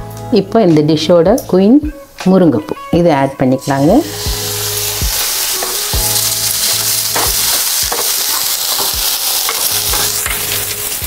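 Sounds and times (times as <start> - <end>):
food sizzling in hot oil: 3.1 - 11.0.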